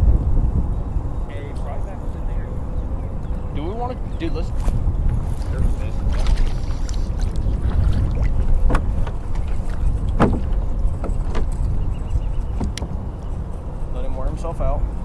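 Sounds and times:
water around kayak: 0.0s - 15.0s
wind rumble: 0.0s - 15.0s
sharp knocks and clicks: 10.1s - 11.6s, 12.6s - 13.0s.

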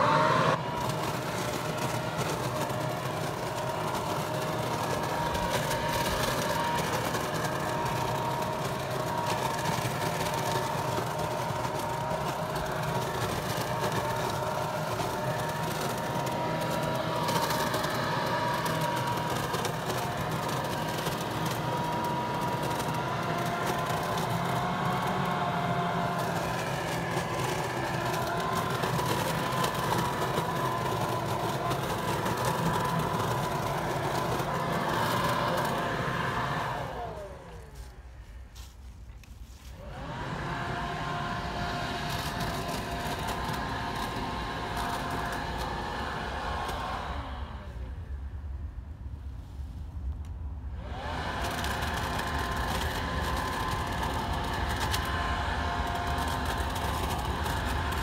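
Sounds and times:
leaf vacuum motor whine: 0.0s - 58.0s.

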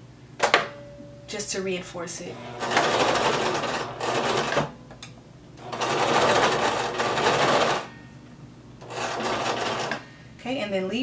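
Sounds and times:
sewing machine stitching: 2.4s - 4.7s, 5.6s - 7.9s, 8.8s - 10.0s.

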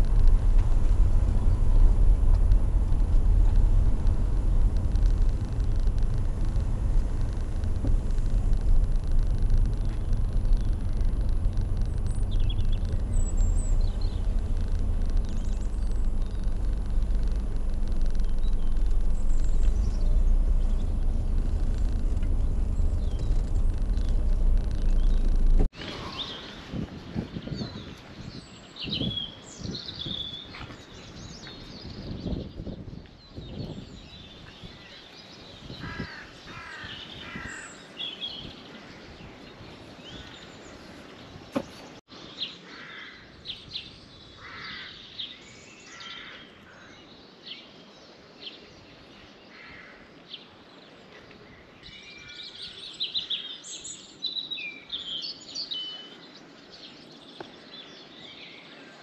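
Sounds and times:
low rumbling thumps: 0.0s - 25.8s
small birds chirping: 0.0s - 59.0s
harsh caw-like bird calls: 35.7s - 38.0s, 42.6s - 43.4s, 44.4s - 45.2s, 45.8s - 47.1s, 49.5s - 50.2s.

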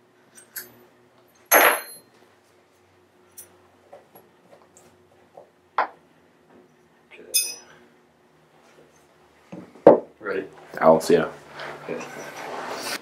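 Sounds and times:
ringing metal clink: 1.4s - 2.1s, 7.3s - 7.8s.

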